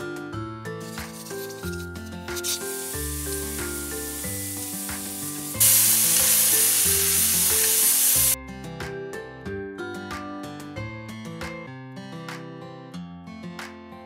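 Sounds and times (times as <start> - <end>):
guitar music: 0.8 - 8.9
pressure cooker venting steam: 2.4 - 8.4.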